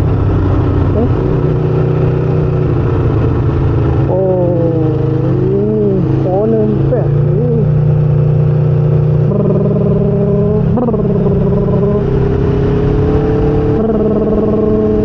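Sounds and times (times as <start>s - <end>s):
motorcycle engine running: 0.0s - 15.0s
wind rush: 10.6s - 15.0s.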